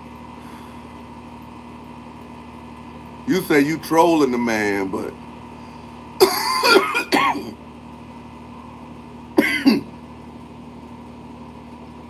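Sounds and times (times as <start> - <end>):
faint steady hum: 0.0 - 12.0
man clearing throat: 6.2 - 7.6, 9.4 - 10.0.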